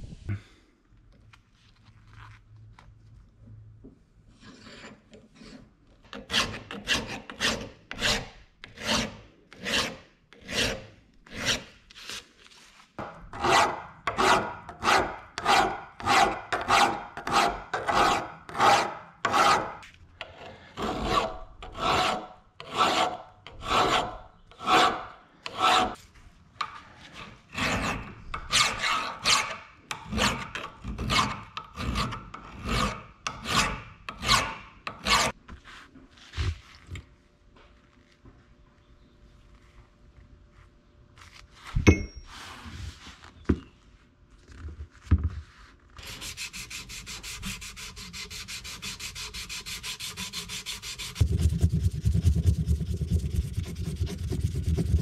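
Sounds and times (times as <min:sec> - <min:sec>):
file rasping on steel: 0:04.4 - 0:12.2, 0:13.3 - 0:26.0, 0:27.0 - 0:35.4, 0:46.0 - 0:55.0.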